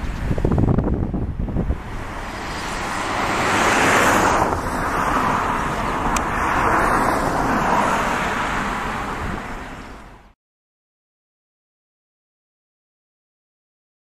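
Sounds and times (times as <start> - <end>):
jet engines overhead: 0.0 - 10.3.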